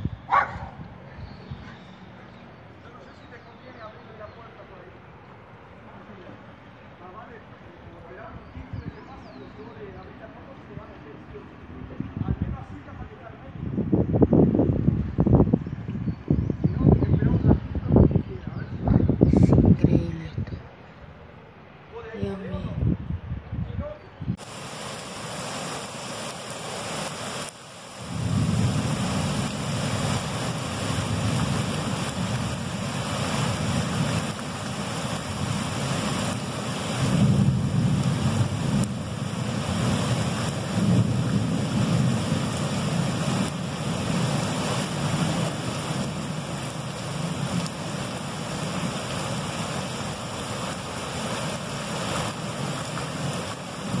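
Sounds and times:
wind buffeting microphone: 0.0 - 2.0, 11.6 - 21.2, 22.2 - 24.7, 27.0 - 54.0
heavy rain pouring: 24.3 - 54.0
floodwater rushing: 24.4 - 54.0.

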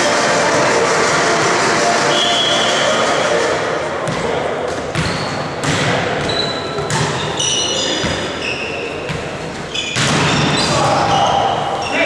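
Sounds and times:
players' voices: 0.0 - 12.0
volleyball hits: 4.0 - 8.3, 9.0 - 11.6
shoe squeaks: 5.0 - 5.6, 6.2 - 12.0.

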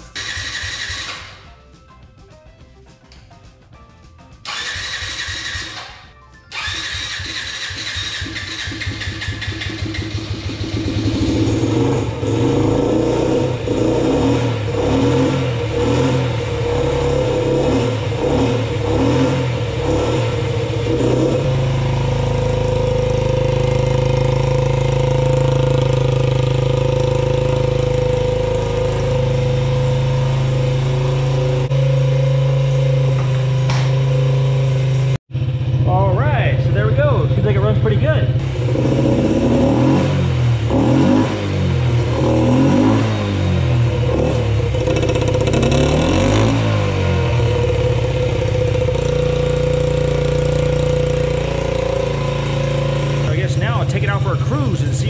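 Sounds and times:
small engine running: 0.0 - 1.4, 4.5 - 40.8, 43.4 - 55.0
starter motor cranking: 4.5 - 10.8.

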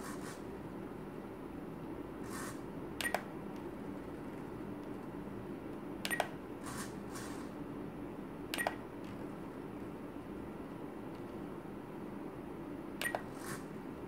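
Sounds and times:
steady low hum: 0.0 - 14.0
transmitter clicks with beeps: 3.0 - 3.3, 6.0 - 6.4, 8.5 - 8.8, 13.0 - 13.3.

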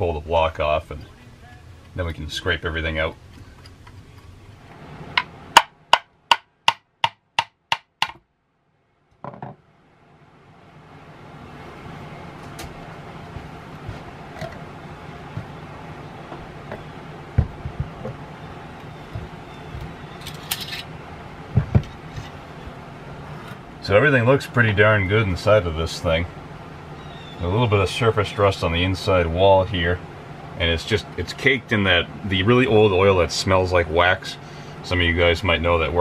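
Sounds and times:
sharp metal taps: 5.1 - 8.2
faint low hum: 8.4 - 36.0
knocks and clunks: 9.1 - 9.6, 12.4 - 20.9, 21.5 - 23.6.

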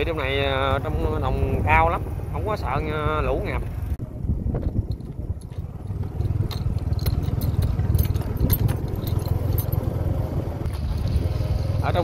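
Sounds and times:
vehicle rumbling on dirt track: 0.0 - 12.0
rattles and clicks: 4.5 - 10.0.

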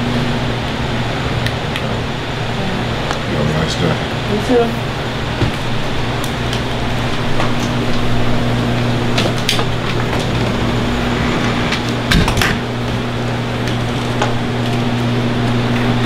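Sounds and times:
room noise hum and hiss: 0.0 - 16.0.

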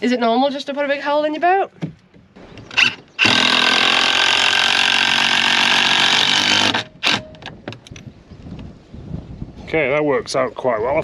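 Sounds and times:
cordless drill running: 2.8 - 7.2.

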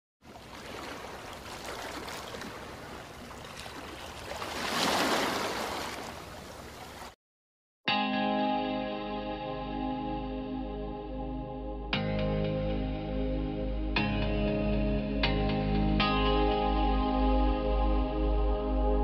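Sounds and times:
waves washing over rocks: 0.4 - 6.3
guitar music: 7.9 - 17.6.

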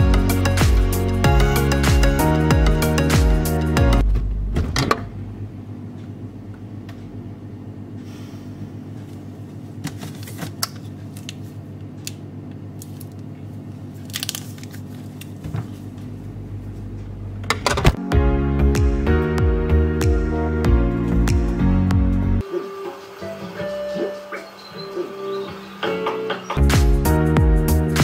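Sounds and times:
refrigerator hum: 4.0 - 18.0.

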